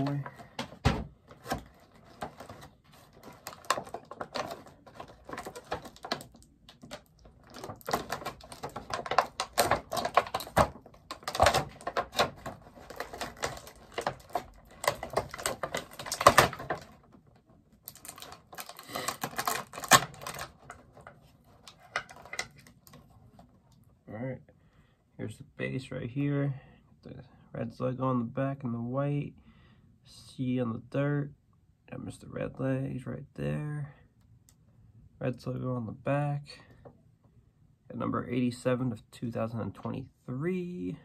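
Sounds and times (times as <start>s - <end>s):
packaging crinkling and scraping: 0.0s - 23.6s.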